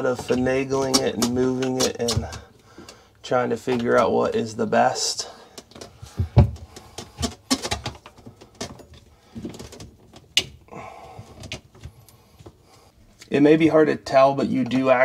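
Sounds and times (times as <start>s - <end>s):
plastic pipes knocking and clicking: 0.0s - 3.0s, 5.5s - 12.6s.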